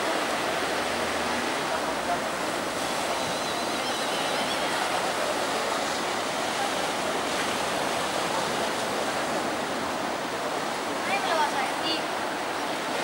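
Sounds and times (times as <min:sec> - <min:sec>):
surf washing onto beach: 0:00.0 - 0:13.0.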